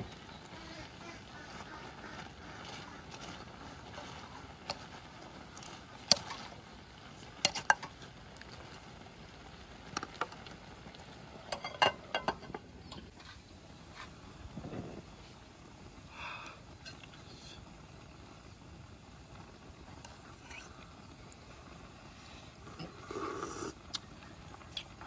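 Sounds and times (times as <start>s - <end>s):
steady low hiss: 0.0s - 25.0s
ceramic lid clinking on pot: 11.5s - 12.6s
ladle clinking against ceramic pot: 11.5s - 12.6s.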